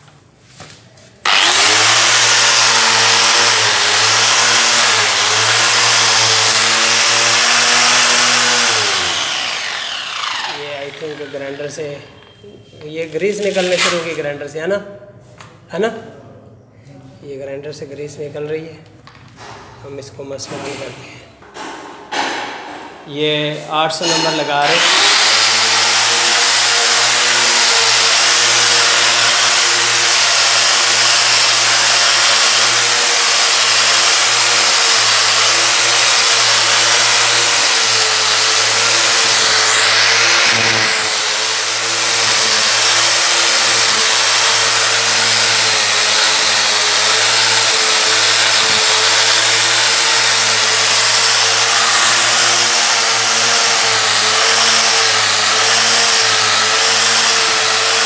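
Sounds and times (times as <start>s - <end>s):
angle grinder motor whine: 1.2s - 12.4s, 24.6s - 58.0s.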